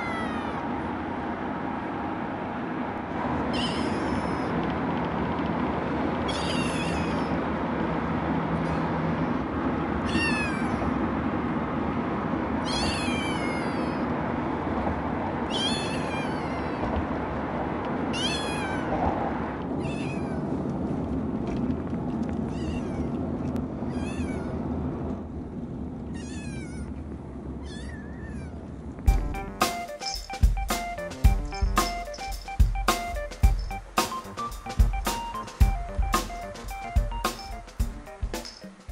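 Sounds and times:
kitten meowing and crying: 0:00.0 - 0:00.7, 0:03.5 - 0:04.6, 0:06.3 - 0:07.4, 0:08.6 - 0:09.4, 0:10.0 - 0:11.0, 0:12.6 - 0:14.2, 0:15.4 - 0:17.0, 0:18.1 - 0:19.0, 0:19.8 - 0:20.5, 0:22.5 - 0:23.2, 0:23.9 - 0:24.6, 0:26.1 - 0:27.0, 0:27.6 - 0:28.7
car ride rumble: 0:00.0 - 0:38.9
music with drums: 0:29.1 - 0:38.9.

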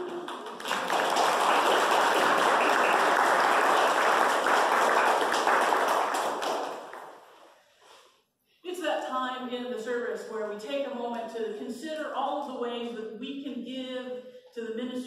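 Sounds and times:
people clapping: 0:00.0 - 0:07.4.

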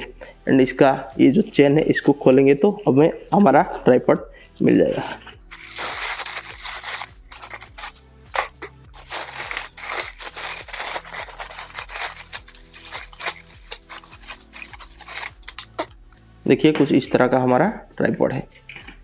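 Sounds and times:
nylon bag rustling: 0:05.4 - 0:15.9
plastic wrapping crinkling: 0:05.4 - 0:16.2.

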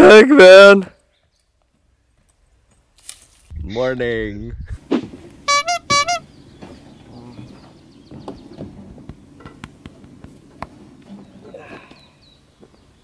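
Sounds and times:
boots knocking on wooden dock: 0:07.5 - 0:10.9.

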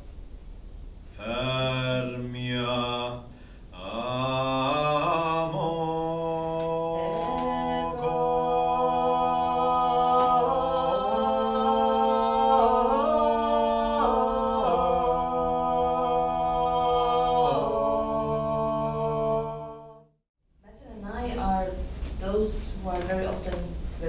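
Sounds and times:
group singing a cappella: 0:01.1 - 0:20.2.

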